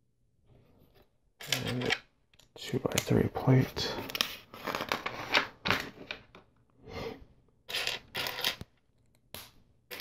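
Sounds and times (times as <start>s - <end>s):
plastic pieces clicking and scraping: 1.4s - 3.2s, 7.7s - 10.0s.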